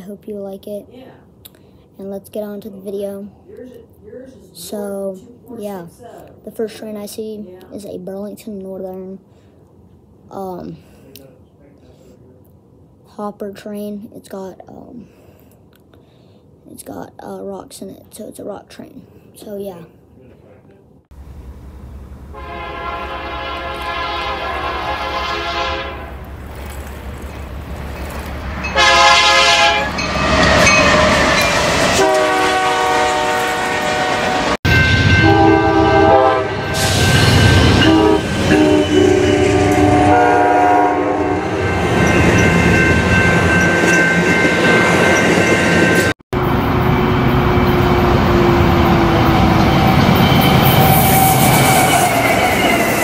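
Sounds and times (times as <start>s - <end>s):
moving train rumble and clatter: 21.2s - 53.0s
train horn blasts: 22.3s - 26.2s, 28.7s - 31.3s, 31.9s - 41.7s.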